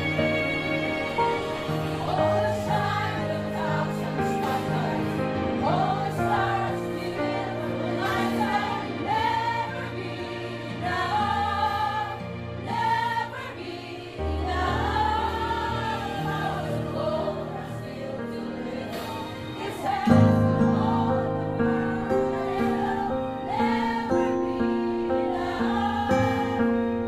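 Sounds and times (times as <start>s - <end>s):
person singing: 0.0s - 2.4s.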